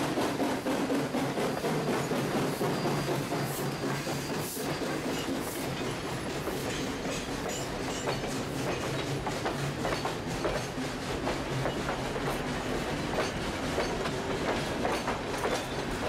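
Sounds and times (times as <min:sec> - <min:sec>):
train rumble: 0:00.0 - 0:16.0
train wheels clicking over rail joints: 0:00.0 - 0:16.0.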